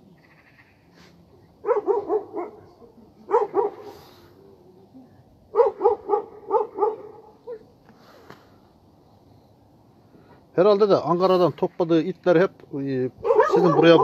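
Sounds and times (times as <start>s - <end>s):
dogs barking: 1.6s - 4.1s, 5.5s - 7.6s, 13.2s - 14.0s.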